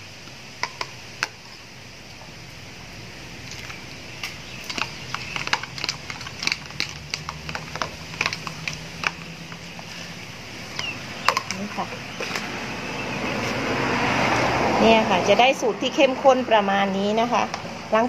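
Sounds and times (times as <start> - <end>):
spoon tapping plastic container: 4.6 - 9.6, 10.8 - 12.5.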